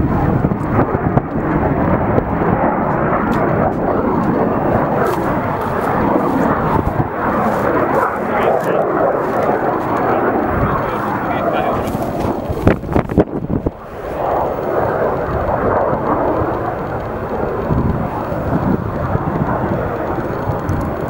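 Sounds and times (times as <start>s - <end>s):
jet engine roaring: 0.0s - 21.0s.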